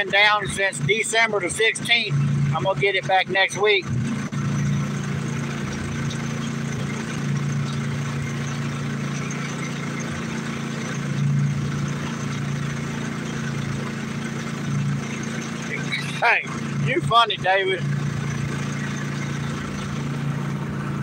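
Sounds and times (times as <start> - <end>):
small boat engine running: 0.0 - 21.0.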